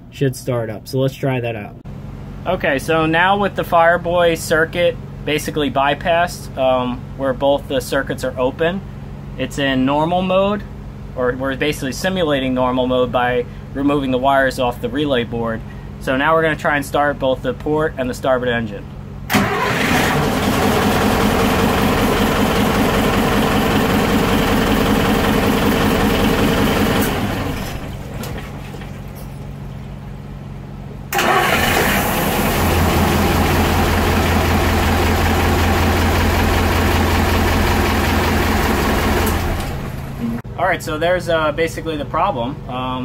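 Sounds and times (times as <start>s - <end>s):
diesel engines starting and running: 19.3s - 29.9s, 31.0s - 40.4s.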